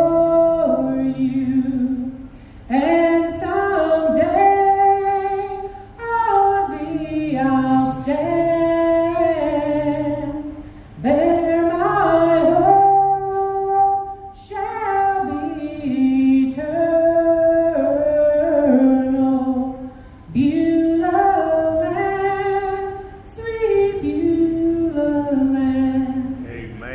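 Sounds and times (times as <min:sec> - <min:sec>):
woman singing gospel: 0:00.0 - 0:26.5.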